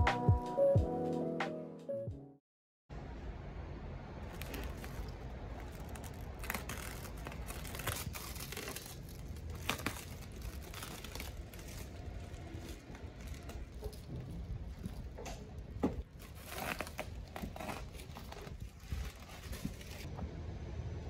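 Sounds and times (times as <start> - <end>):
plastic wrap crinkling and tearing: 4.2 - 20.1.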